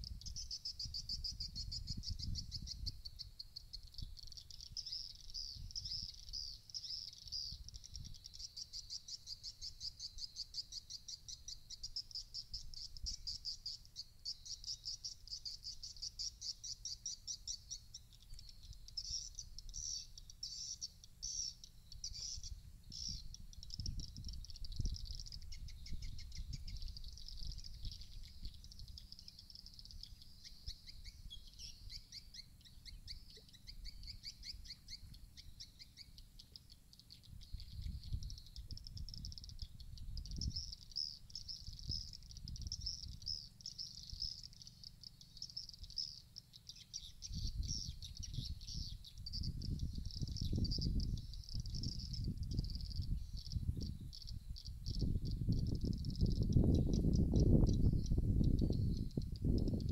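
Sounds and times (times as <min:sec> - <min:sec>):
wind rumble on microphone: 0:00.0 - 0:06.5, 0:07.1 - 0:08.4, 0:22.0 - 0:32.0, 0:37.2 - 0:43.4, 0:47.0 - 0:59.9.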